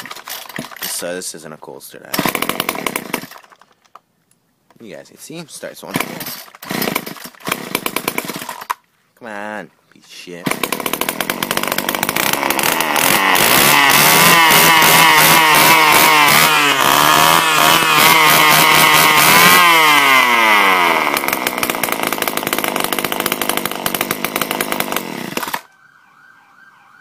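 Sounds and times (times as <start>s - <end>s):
string trimmer engine revving: 0.0s - 1.1s, 2.1s - 3.6s, 5.8s - 8.8s, 10.4s - 25.7s.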